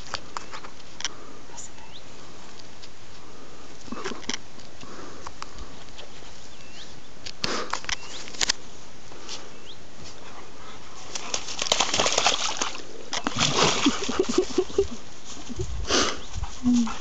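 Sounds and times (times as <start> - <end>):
dog snuffling in grass: 15.2 - 17.0.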